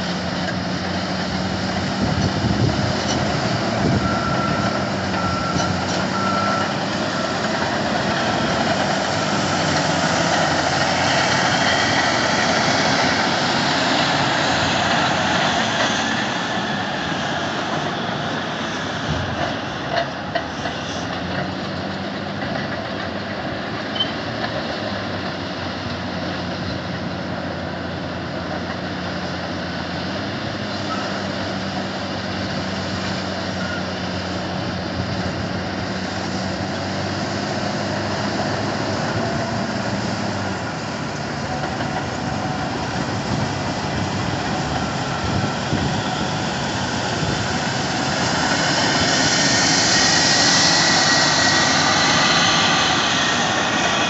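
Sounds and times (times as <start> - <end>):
heavy diesel machinery drone: 0.0 - 54.0.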